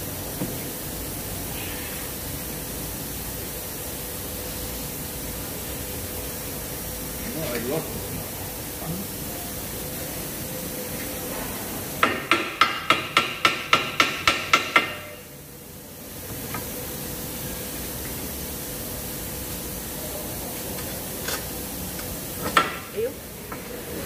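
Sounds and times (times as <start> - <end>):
hammer striking metal: 12.0 - 15.3.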